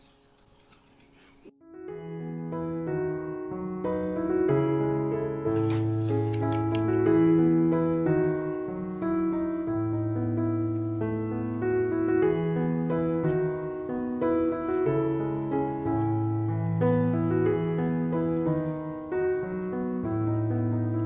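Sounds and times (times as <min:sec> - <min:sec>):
slow gentle piano music: 0:01.5 - 0:21.0.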